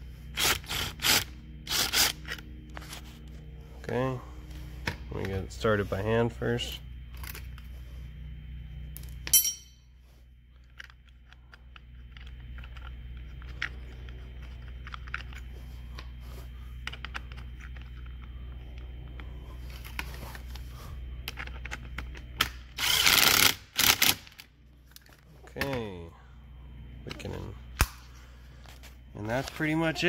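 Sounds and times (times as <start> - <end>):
power tool bursts: 22.8 - 24.3.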